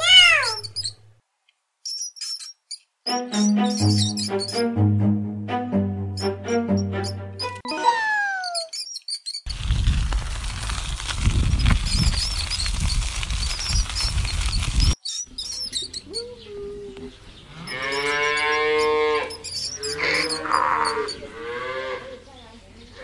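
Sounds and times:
birds chirping: 0.0s - 1.2s, 1.8s - 5.0s, 6.0s - 9.5s, 14.8s - 21.4s, 22.1s - 23.0s
cattle mooing: 17.5s - 22.2s.

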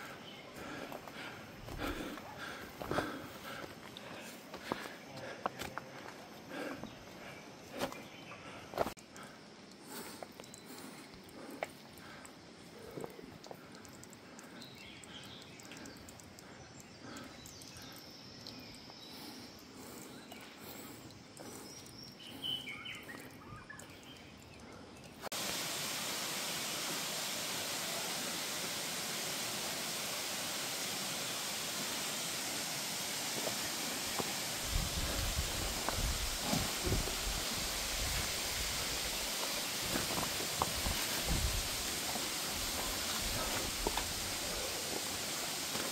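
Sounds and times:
faint chirps: 0.0s - 25.3s.

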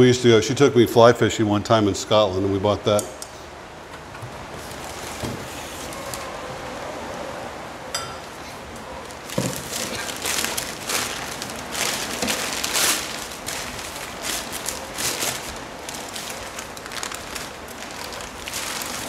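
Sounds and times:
packing paper crinkling: 4.6s - 6.4s, 9.0s - 19.0s.

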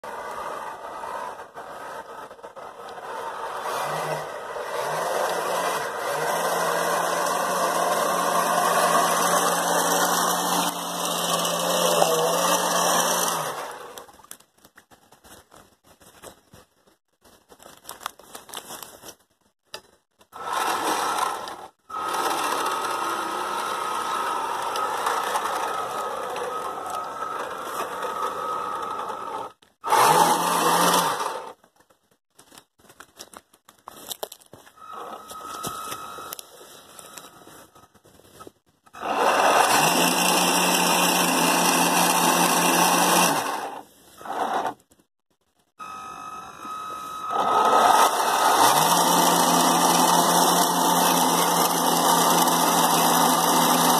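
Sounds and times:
electric motors whining: 0.0s - 14.1s, 20.3s - 31.6s, 34.7s - 37.9s, 38.9s - 44.8s, 45.8s - 53.9s.

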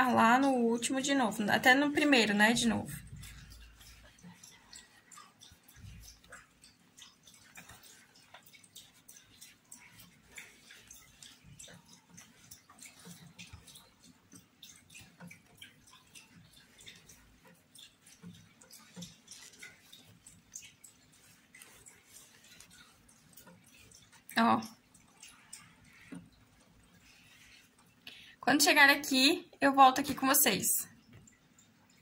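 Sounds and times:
yarn rustling: 18.0s - 24.2s.

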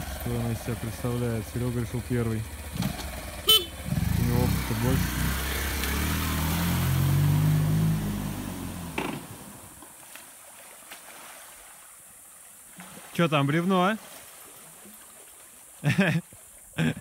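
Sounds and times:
motorcycle engine running: 0.0s - 9.6s
water splashing: 0.0s - 17.0s
engine stalling with sharp sound: 2.7s - 3.3s.

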